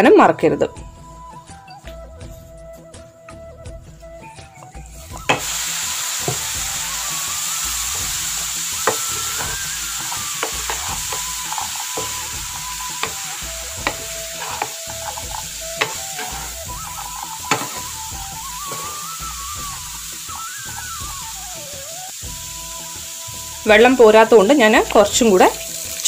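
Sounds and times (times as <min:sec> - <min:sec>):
vegetables sizzling in a pan: 0:05.0 - 0:26.0
wooden spatula knocking a pan: 0:06.2 - 0:06.6, 0:08.8 - 0:19.1.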